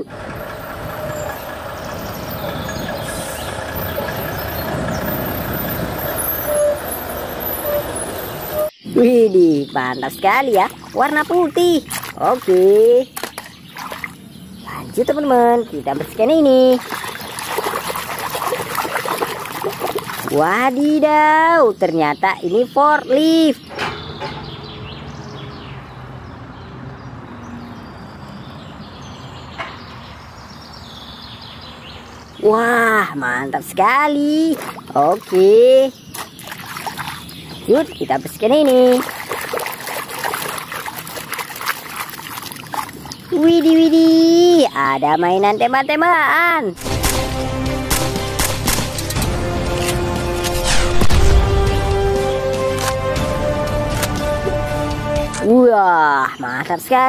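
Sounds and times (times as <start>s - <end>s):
truck diesel engine driving past: 0.0s - 8.7s
birds chirping: 0.0s - 50.4s, 51.3s - 57.0s.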